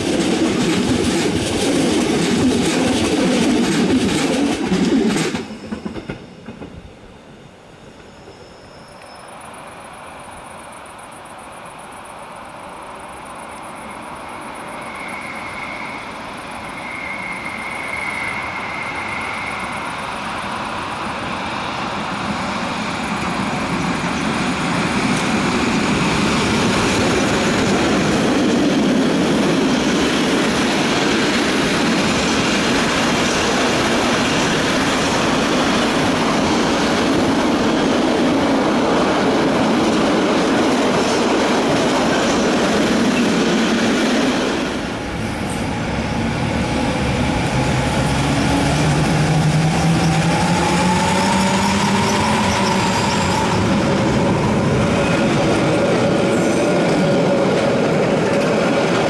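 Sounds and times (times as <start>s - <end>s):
train wheel squeal: 2.1s - 45.8s, 46.6s - 59.0s
freight wagons rumbling on rails: 13.0s - 59.0s.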